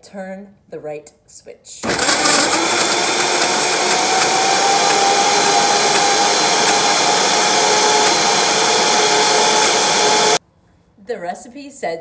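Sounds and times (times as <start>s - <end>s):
blender running: 1.8s - 10.4s.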